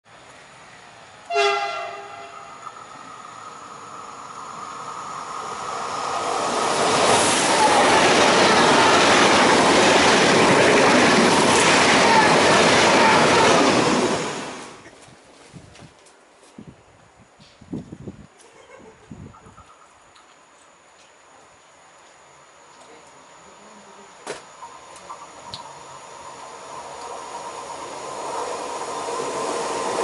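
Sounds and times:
train passing at speed: 0.1s - 14.8s, 24.5s - 30.0s
train horn blast: 1.3s - 2.7s.

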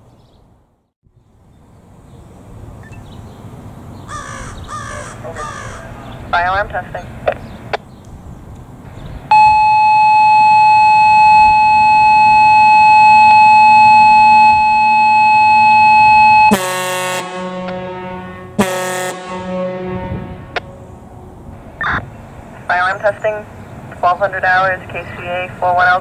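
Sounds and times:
fire alarm horn blast: 9.3s - 20.8s
lower horn tones: 9.3s - 21.2s.

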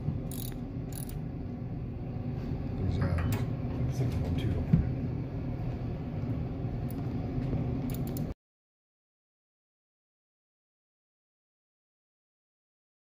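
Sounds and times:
ratchet wrench clicking: 0.3s - 1.2s, 7.9s - 8.3s.

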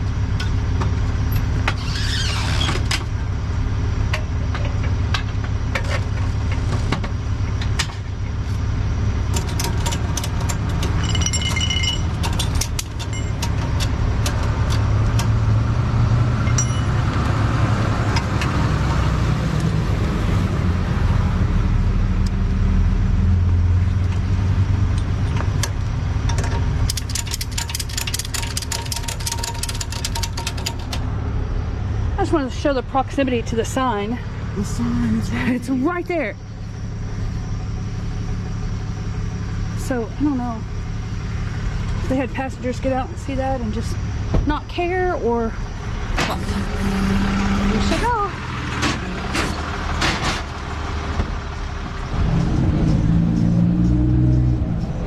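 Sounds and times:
vehicle engine idling: 0.0s - 55.0s
metal strap hardware rattling: 26.3s - 31.0s
ratchet clicks: 26.9s - 31.0s.

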